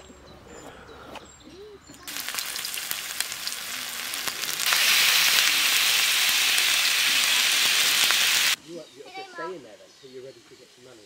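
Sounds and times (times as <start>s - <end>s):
crackling spits: 2.1s - 8.6s
meat sizzling in frying pan: 2.1s - 8.6s.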